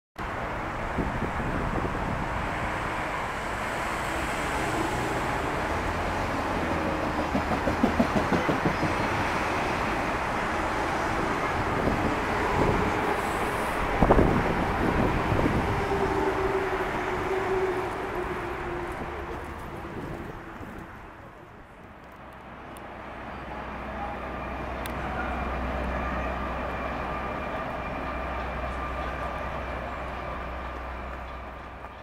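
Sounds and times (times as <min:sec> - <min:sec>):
train wheels rumbling on rails: 0:00.7 - 0:32.0
loud rail clack: 0:03.5 - 0:20.9, 0:24.0 - 0:32.0.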